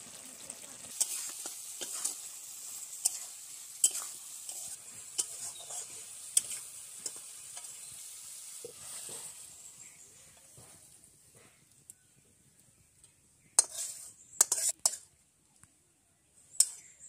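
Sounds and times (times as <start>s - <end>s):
curry sizzling: 0.0s - 11.2s, 12.5s - 15.2s, 16.5s - 17.0s
spatula scraping iron pan: 3.0s - 7.9s, 13.6s - 15.1s, 16.6s - 17.0s.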